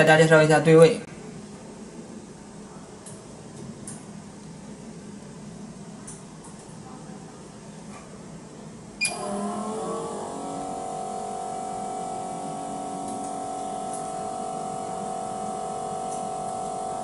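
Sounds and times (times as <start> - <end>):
machine electric hum: 0.0 - 17.0.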